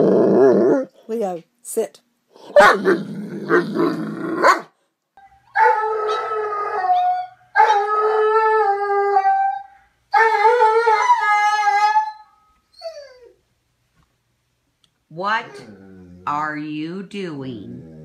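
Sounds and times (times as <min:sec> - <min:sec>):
dog howling: 0:05.6 - 0:12.3.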